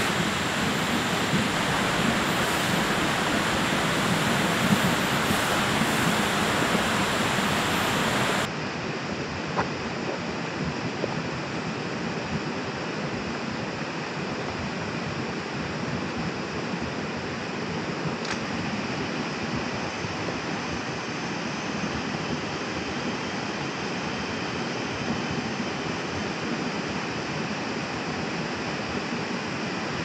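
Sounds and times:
water rushing: 0:00.0 - 0:08.5.

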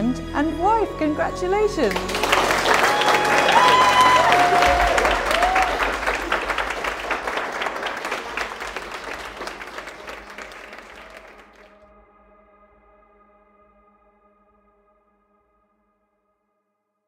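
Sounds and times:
guests applauding: 0:01.9 - 0:11.8.

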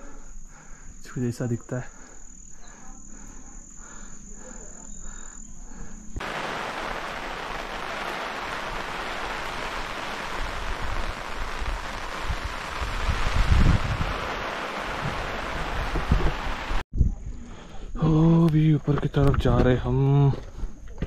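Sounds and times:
wind rushing on microphone: 0:06.2 - 0:17.4.

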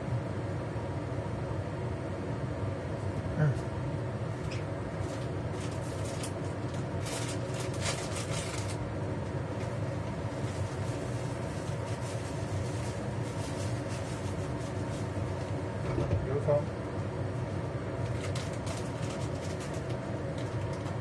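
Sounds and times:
range hood fan humming: 0:00.0 - 0:21.0
plastic bag rustling: 0:05.0 - 0:08.8, 0:09.6 - 0:15.6, 0:18.0 - 0:20.9.

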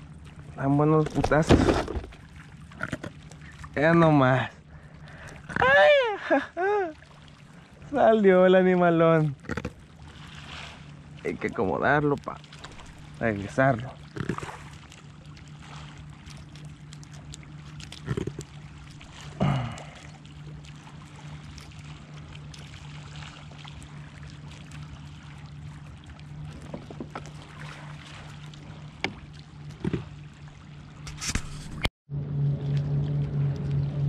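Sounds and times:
small splashes and knocks: 0:00.0 - 0:04.2, 0:09.3 - 0:31.9
low hum: 0:00.0 - 0:34.0
water lapping against kayak hull: 0:00.0 - 0:34.0.

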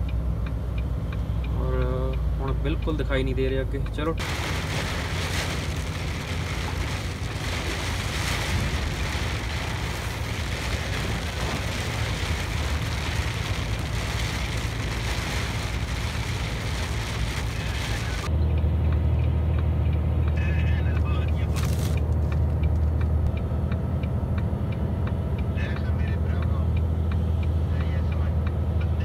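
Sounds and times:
rain hissing: 0:04.2 - 0:18.3
truck diesel engine running: 0:04.2 - 0:18.3.

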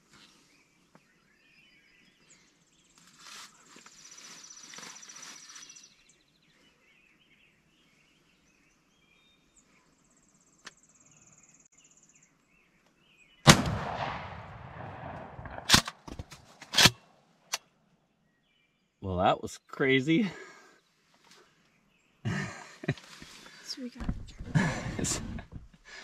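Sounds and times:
shotgun blast with echo: 0:13.5 - 0:15.8.

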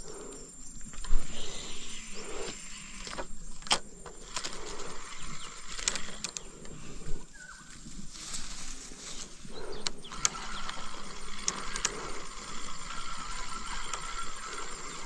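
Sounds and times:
tall grass rustling: 0:00.0 - 0:15.0
fishing reel clicks: 0:01.0 - 0:06.7, 0:09.8 - 0:15.0.

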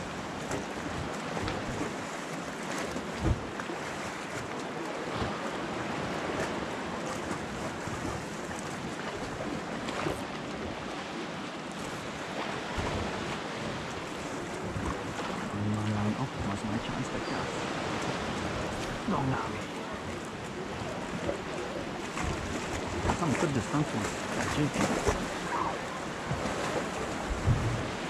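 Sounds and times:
small waves washing against rocks: 0:00.0 - 0:28.0
wind buffeting microphone: 0:24.0 - 0:28.0.

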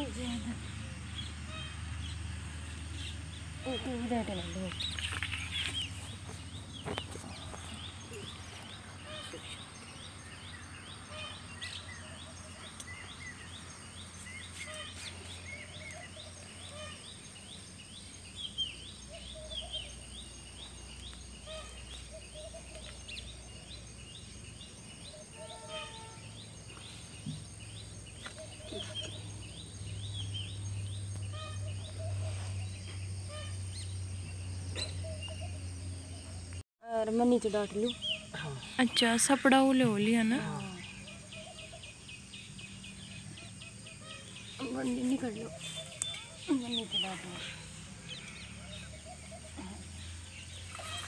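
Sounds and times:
lower bird calls: 0:37.8 - 0:51.0.

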